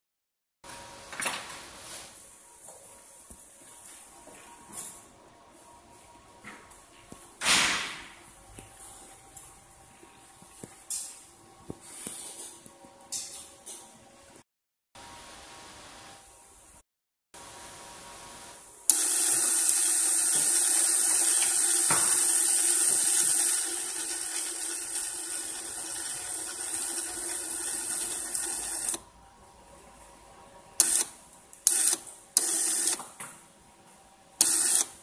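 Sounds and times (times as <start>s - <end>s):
electric actuator motor running: 18.9s - 29.0s.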